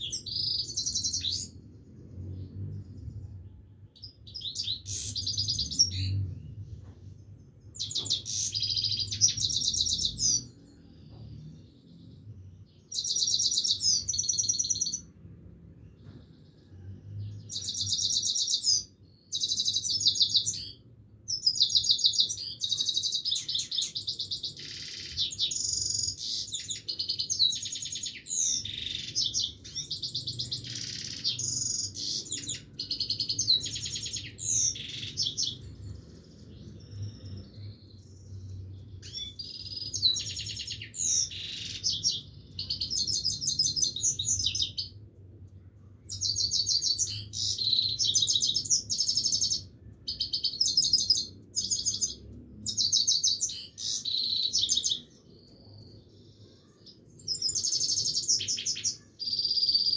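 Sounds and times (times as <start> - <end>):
finch twittering song: 0.0 - 15.2, 15.8 - 45.0, 46.0 - 59.9.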